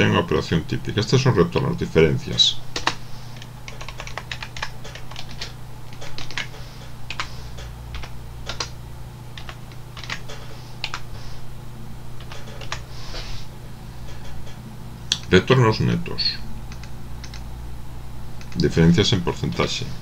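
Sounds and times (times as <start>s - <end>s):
steady low hum: 0.0s - 20.0s
keyboard typing: 2.7s - 8.8s, 9.4s - 11.1s, 12.2s - 12.9s, 16.7s - 17.4s.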